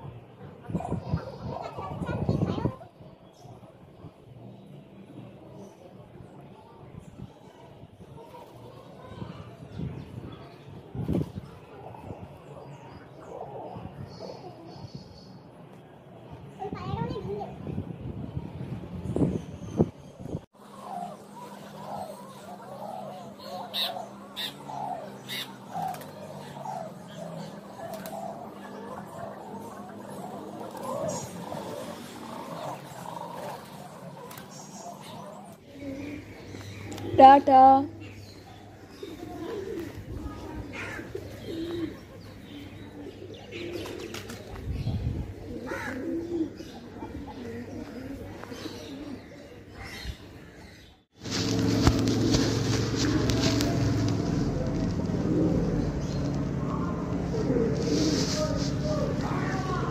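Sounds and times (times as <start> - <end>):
pigeons cooing: 20.6 - 59.9
low rumble: 51.2 - 59.9.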